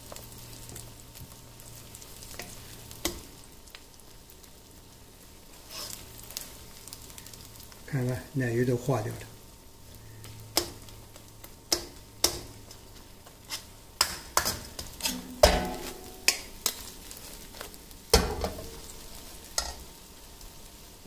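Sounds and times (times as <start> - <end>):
eggs sizzling in oil: 0.0 - 21.0
metal ladle scraping a wok: 5.6 - 6.1, 13.4 - 13.7, 14.4 - 17.6.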